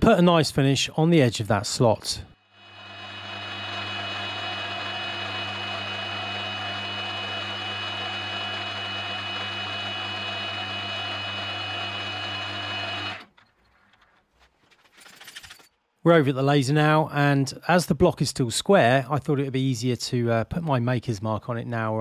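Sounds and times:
milling machine whining: 2.6s - 13.3s.

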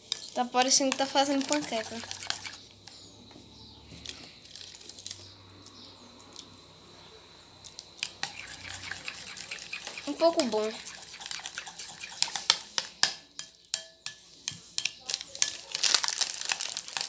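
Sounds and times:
spoon scraping glass bowl: 0.1s - 2.6s, 8.1s - 14.7s.

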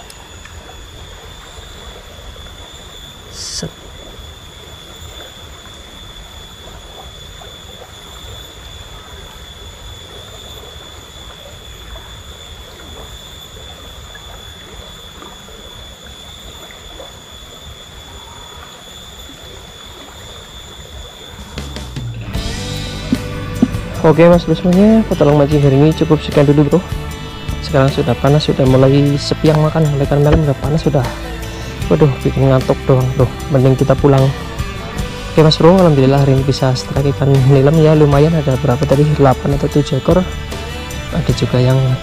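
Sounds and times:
faint steady high tone: 0.0s - 42.0s
low rumble: 21.8s - 42.0s.

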